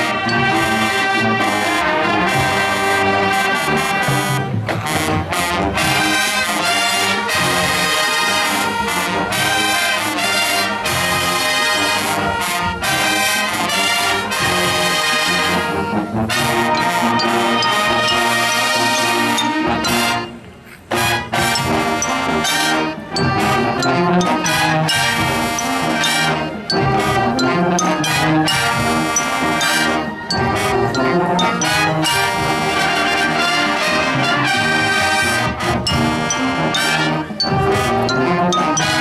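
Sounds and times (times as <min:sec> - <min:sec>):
marching band playing: 0:00.0 - 0:39.0.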